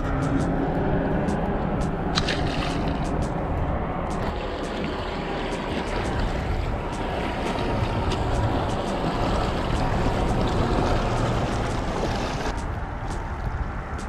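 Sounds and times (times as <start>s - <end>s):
wind rumbling on microphone: 0.0s - 14.0s
waves lapping against rocks: 2.1s - 3.1s, 4.2s - 12.5s.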